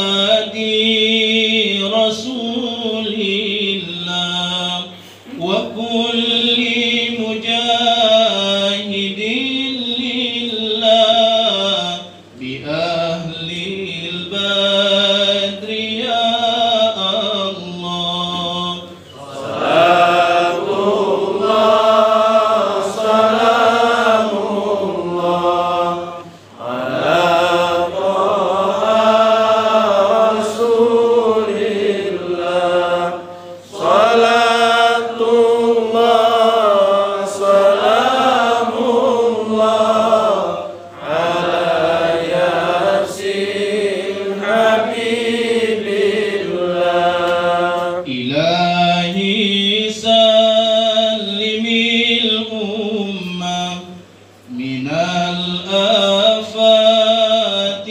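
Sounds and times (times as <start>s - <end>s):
man chanting into a microphone: 0.0s - 19.2s, 47.6s - 57.9s.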